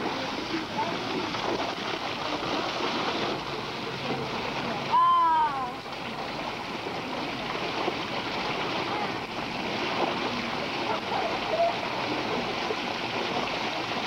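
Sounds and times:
fountain water splashing: 0.0s - 14.0s.

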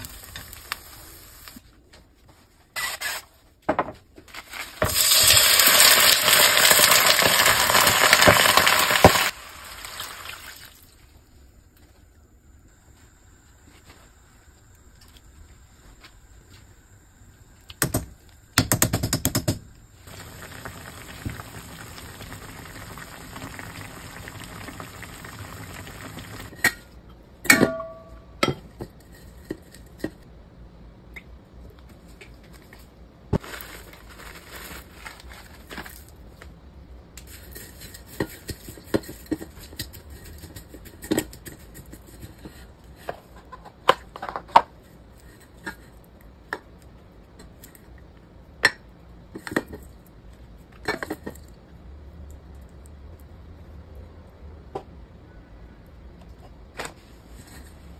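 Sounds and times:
steady hiss: 0.0s - 1.7s, 19.8s - 26.6s.

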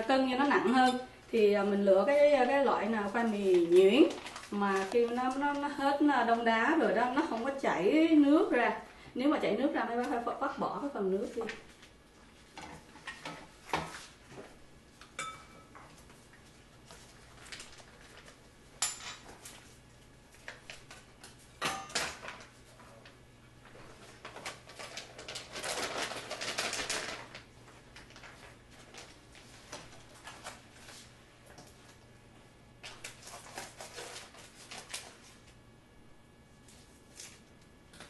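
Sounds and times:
plastic bag rustling: 0.0s - 7.9s, 16.0s - 18.6s, 22.1s - 32.1s, 32.8s - 35.6s.

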